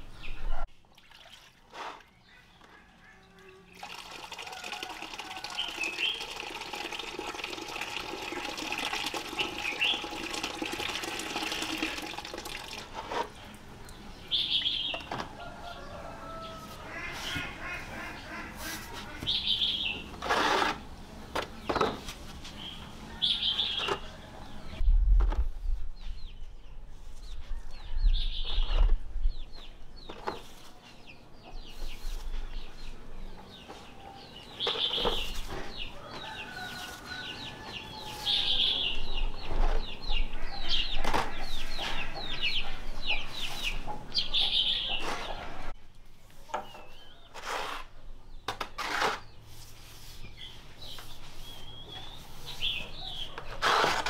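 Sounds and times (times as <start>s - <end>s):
chickens clucking and calling: 14.1s - 20.3s, 33.4s - 45.8s, 50.8s - 53.8s.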